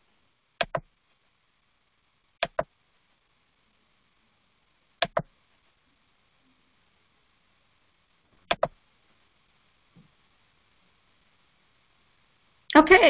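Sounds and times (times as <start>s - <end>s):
faint room hiss: 0.0s - 13.0s
computer mouse clicks: 0.6s - 0.9s, 2.4s - 2.7s, 5.0s - 5.3s, 8.4s - 8.8s.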